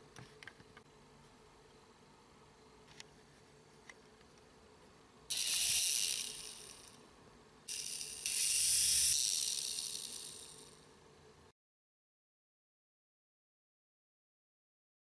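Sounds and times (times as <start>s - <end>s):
toy helicopter motors whirring: 5.3s - 7.0s, 7.7s - 10.8s.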